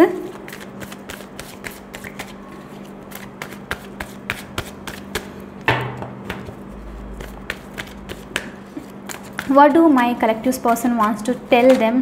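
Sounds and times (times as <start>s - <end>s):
cards being shuffled: 0.4s - 5.3s, 7.2s - 9.6s
loud knock: 5.7s - 6.2s.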